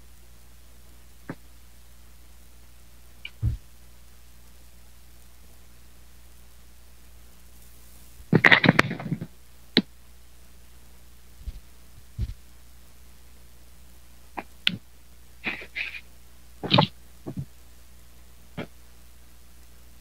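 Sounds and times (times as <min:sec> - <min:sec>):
faint steady hum: 0:00.0 - 0:20.0
microphone handling rustling: 0:03.3 - 0:03.6, 0:11.4 - 0:12.4, 0:16.6 - 0:17.5.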